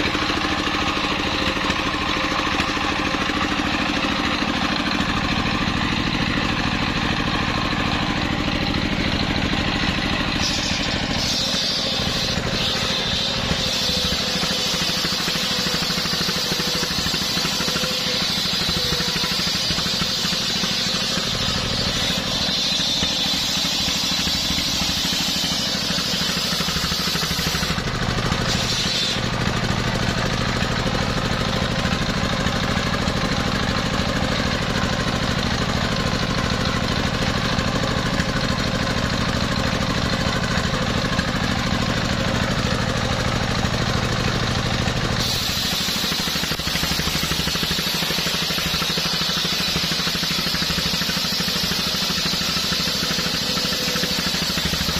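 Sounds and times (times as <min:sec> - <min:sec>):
engine low hum: 0:00.0 - 0:54.9
circular saw blade ripping wood: 0:10.1 - 0:30.2, 0:45.1 - 0:54.9.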